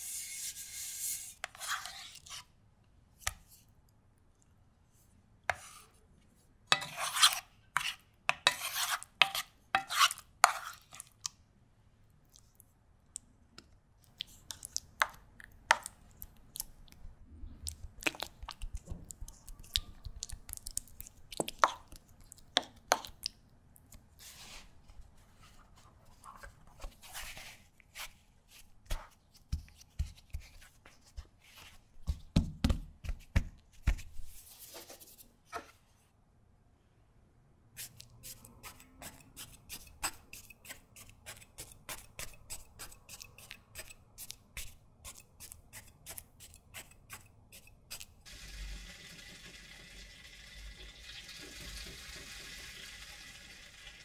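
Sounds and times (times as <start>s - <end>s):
spoon scraping a metal tin: 6.7s - 11.0s, 38.2s - 44.0s.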